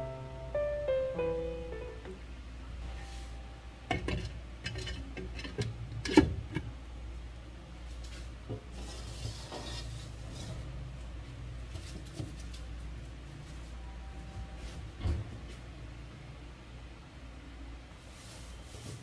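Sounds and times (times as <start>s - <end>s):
spatula scraping in frying pan: 8.7s - 10.7s.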